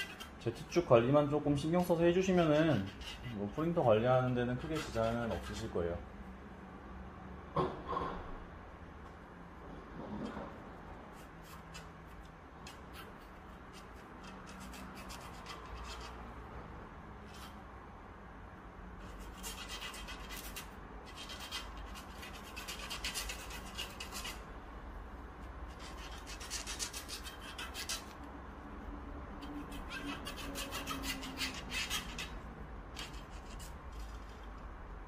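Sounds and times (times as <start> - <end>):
hands rubbing and scraping parts: 0.0 - 5.8, 9.1 - 16.5, 17.2 - 17.6, 19.0 - 24.5, 25.3 - 28.4, 29.4 - 34.8.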